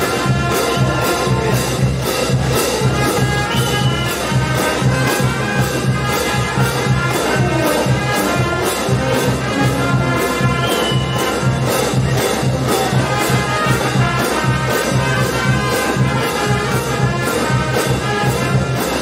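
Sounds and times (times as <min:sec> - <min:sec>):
brass band playing: 0:00.0 - 0:19.0
drums and percussion: 0:00.0 - 0:19.0.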